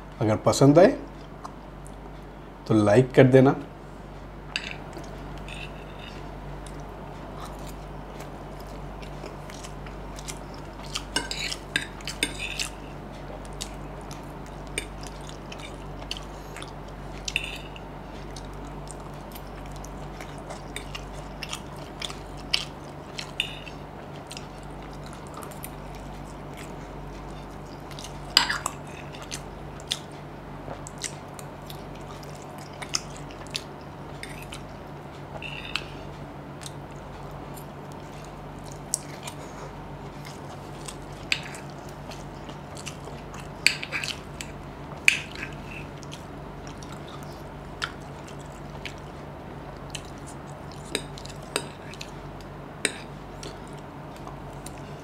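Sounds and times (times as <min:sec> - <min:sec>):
chewing: 0:04.6 - 0:55.0
fork scraping on plate: 0:05.4 - 0:06.3.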